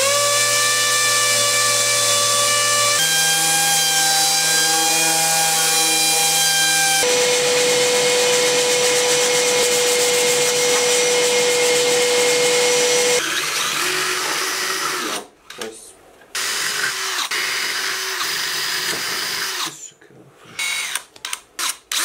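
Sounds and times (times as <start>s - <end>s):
orbital sander on wood: 0.0s - 13.2s
cordless drill boring into wood: 10.7s - 15.2s, 16.4s - 19.7s, 20.6s - 22.0s.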